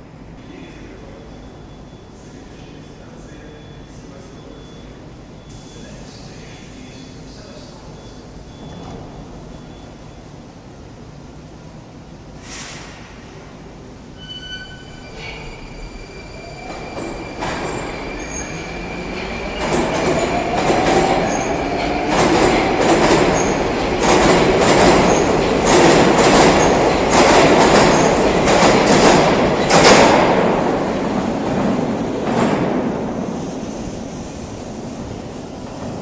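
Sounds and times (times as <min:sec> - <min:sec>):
train rumble: 0:14.8 - 0:36.0.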